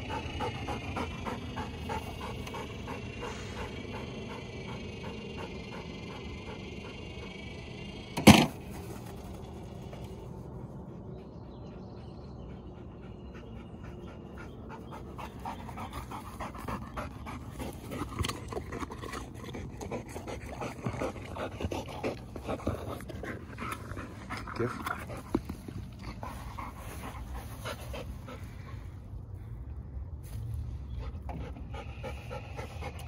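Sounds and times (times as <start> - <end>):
dog panting: 0.0 - 7.9, 10.8 - 29.0, 30.9 - 33.0.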